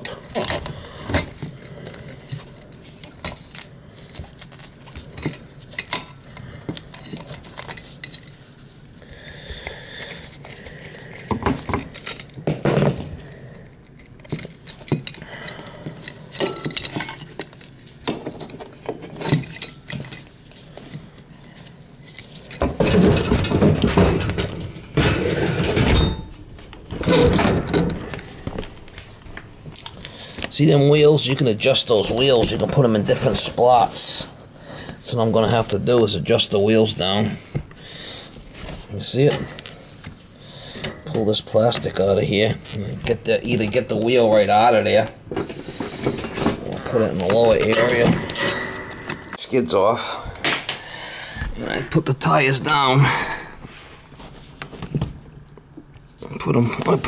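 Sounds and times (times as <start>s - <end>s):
continuous metal clatter: 22.2s - 28.2s, 45.4s - 49.4s.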